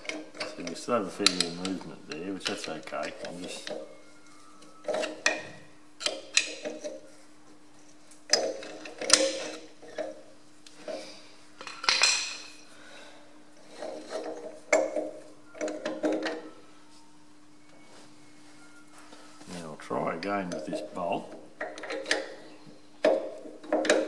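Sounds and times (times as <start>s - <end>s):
metal parts clinking: 0.0s - 3.9s.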